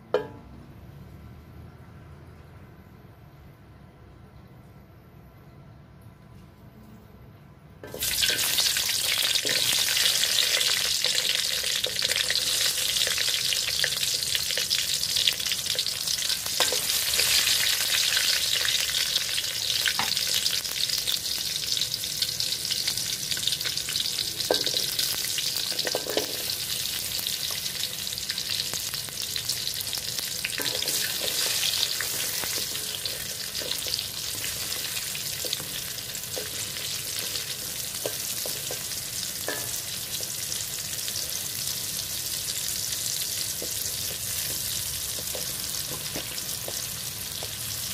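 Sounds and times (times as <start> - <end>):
vegetables sizzling in hot oil: 7.8 - 47.9
spoon scraping the pan: 30.6 - 37.4.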